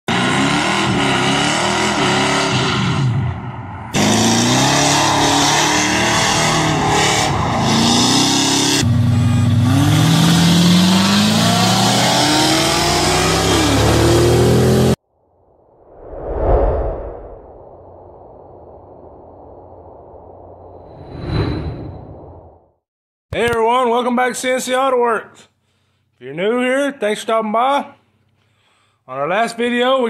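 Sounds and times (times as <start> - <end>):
engines revving and accelerating: 0.1 - 15.0.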